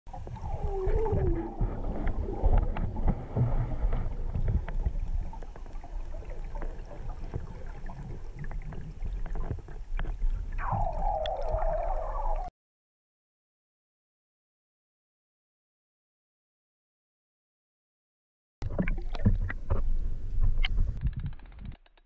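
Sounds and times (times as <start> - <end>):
underwater rumble of moving water: 0.1 - 12.5, 18.6 - 21.8
underwater clicks and knocks: 0.2 - 11.4, 18.6 - 22.0.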